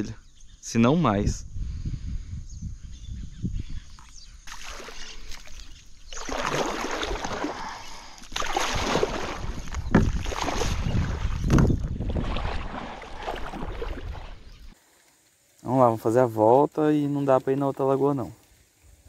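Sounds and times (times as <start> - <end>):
kayak paddle splashing water: 4.4 - 15.0.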